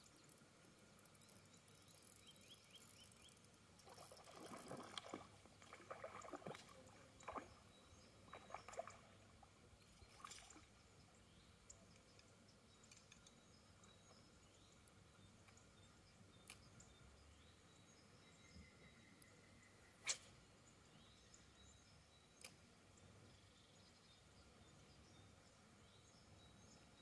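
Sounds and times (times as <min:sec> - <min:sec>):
water splashing and dripping: 0:03.8 - 0:07.6, 0:10.0 - 0:10.7.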